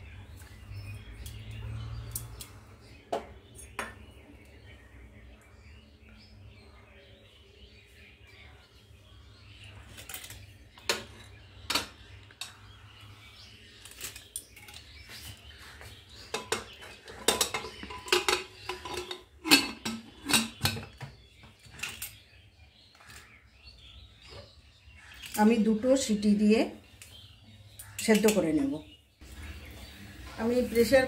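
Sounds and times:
metal lid clanking on pot: 16.4 - 20.9.

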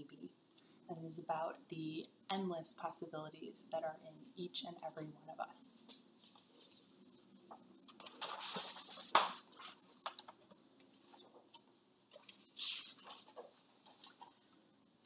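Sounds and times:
book pages rustling and turning: 5.9 - 14.6.

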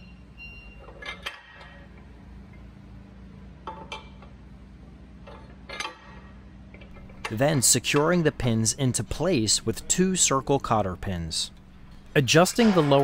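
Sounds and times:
metal pins clinking: 0.6 - 2.0, 5.2 - 13.0.

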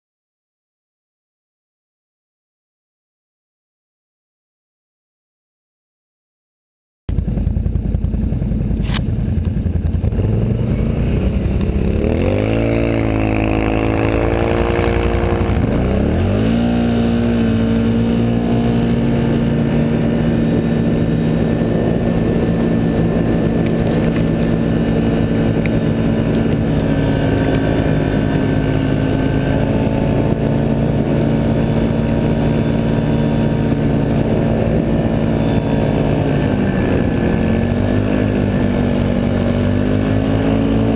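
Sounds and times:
low rumble: 7.1 - 37.8
tracked atv engine revving: 7.1 - 40.9.

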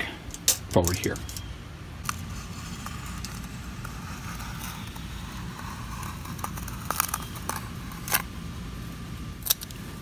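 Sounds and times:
low background rumble: 0.0 - 10.0
utility knife cutting mat: 2.1 - 8.3.

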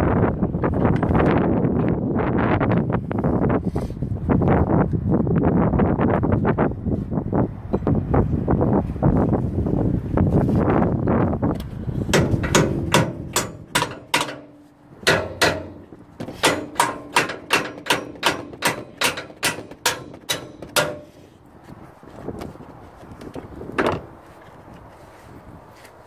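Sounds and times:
hammer striking steel pin: 12.1 - 21.3.

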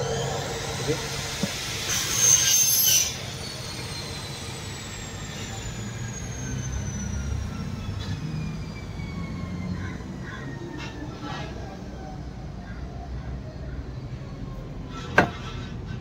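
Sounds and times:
loud burst of hiss: 0.0 - 5.3
high-pitched whine falling in pitch: 0.0 - 9.8.

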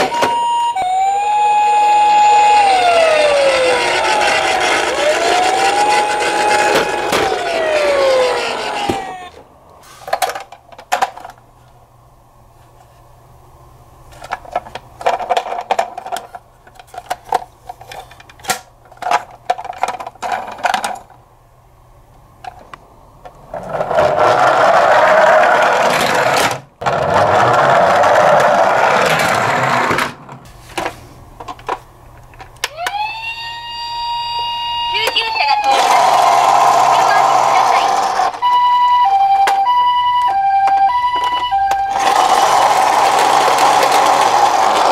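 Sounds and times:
toy siren wailing: 0.0 - 9.4, 32.7 - 42.5
loud whirring: 0.0 - 9.5, 35.5 - 38.5, 41.8 - 44.9
toy motor whirring: 1.2 - 9.4, 35.0 - 38.4, 41.9 - 44.9.

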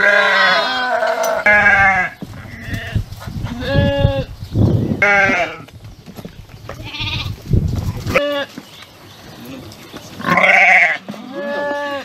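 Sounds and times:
goat kid bleating: 0.0 - 4.3, 5.0 - 5.7, 6.7 - 7.4, 8.1 - 8.6, 10.2 - 12.0.

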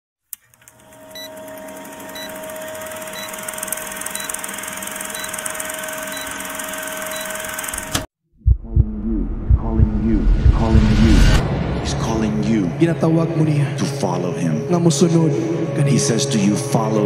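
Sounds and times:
film projector whirring: 0.4 - 8.1.

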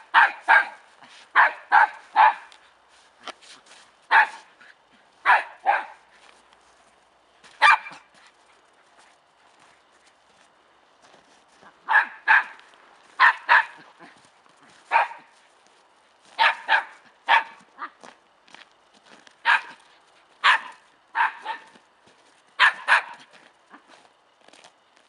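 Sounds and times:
dog barking: 0.0 - 0.8, 1.4 - 2.6, 4.1 - 4.5, 5.2 - 6.0, 7.6 - 8.1, 11.8 - 12.6, 13.2 - 13.8, 14.9 - 15.3, 16.4 - 17.6, 19.4 - 19.8, 20.4 - 21.8, 22.6 - 23.3.

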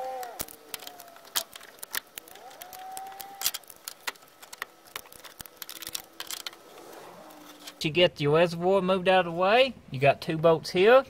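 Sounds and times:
pliers clicking and clinking: 0.0 - 6.6.

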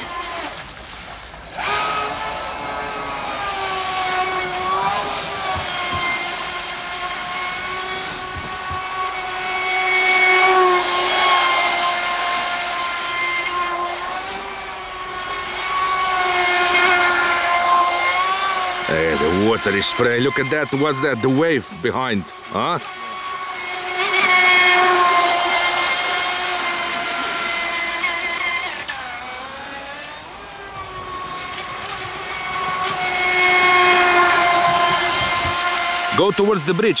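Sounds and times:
electric motor whining: 0.0 - 0.8, 1.4 - 37.0.

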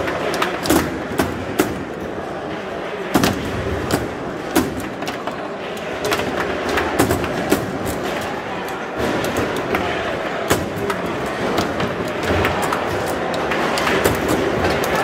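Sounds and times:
foosball clacks and knocks: 6.0 - 15.0.

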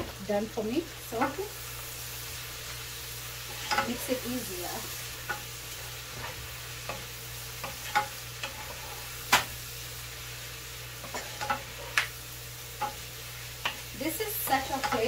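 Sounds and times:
vegetables sizzling in a pan: 0.0 - 15.0
wooden spoon scraping a pan: 3.4 - 9.4, 11.0 - 12.1, 12.8 - 15.0.

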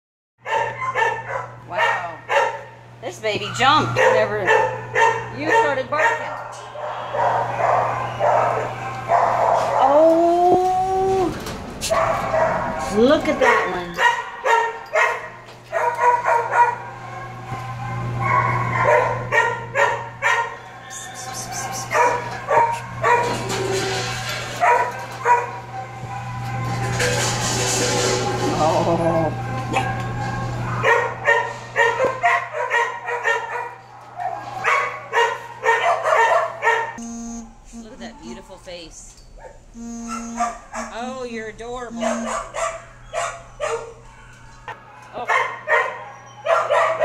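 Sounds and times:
dogs barking: 0.4 - 10.0, 11.8 - 37.0, 39.3 - 41.2, 41.8 - 47.0
dog drawn-out call: 15.8 - 26.8, 42.0 - 47.0
steady low hum: 37.0 - 44.2.

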